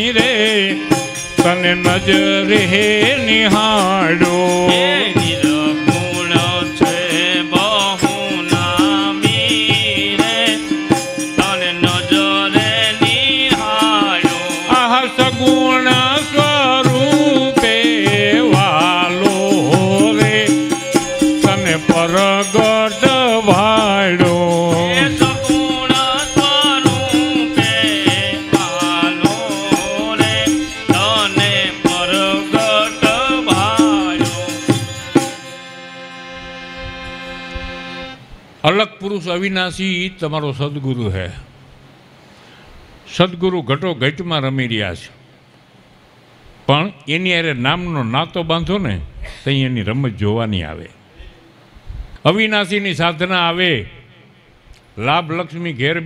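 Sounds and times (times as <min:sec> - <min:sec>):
man singing: 0:00.0 - 0:35.9
jingling hand percussion: 0:00.0 - 0:38.2
harmonium: 0:00.0 - 0:39.8.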